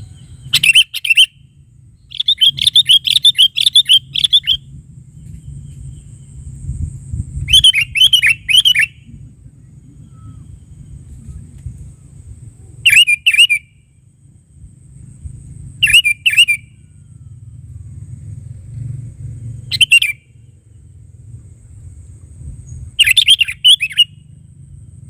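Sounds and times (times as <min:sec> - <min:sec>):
bird calling whistled notes: 0:00.0 - 0:06.4, 0:07.4 - 0:14.0, 0:15.8 - 0:17.4, 0:19.6 - 0:20.5, 0:22.6 - 0:24.4.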